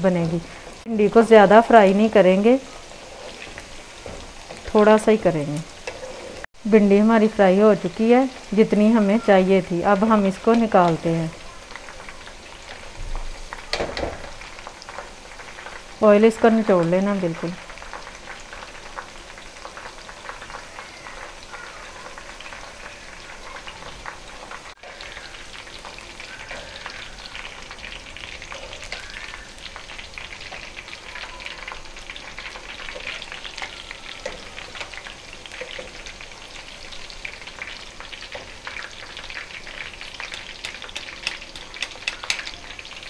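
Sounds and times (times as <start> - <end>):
okra sizzling in hot oil: 0.0 - 43.0
utensils knocking against pan: 40.3 - 42.6.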